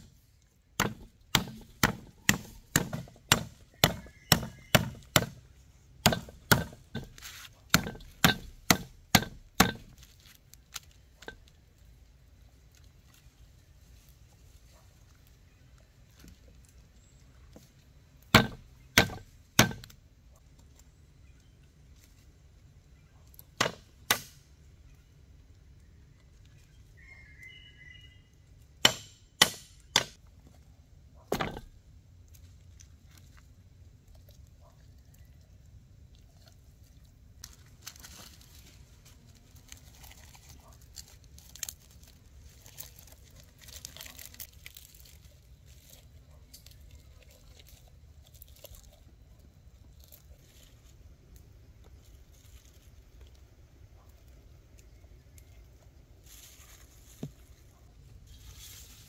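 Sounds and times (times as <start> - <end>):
blade chopping strikes: 0.8 - 5.4, 6.0 - 9.9, 18.4 - 19.9, 28.8 - 30.2
rustling and handling sounds: 5.4 - 18.0, 36.2 - 51.1, 56.2 - 59.0.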